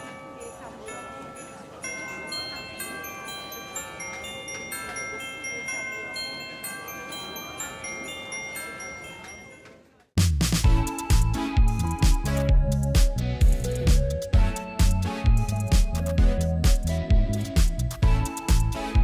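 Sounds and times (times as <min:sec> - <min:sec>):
bells ringing: 0:00.0 - 0:10.0, 0:10.7 - 0:12.9, 0:18.0 - 0:19.0.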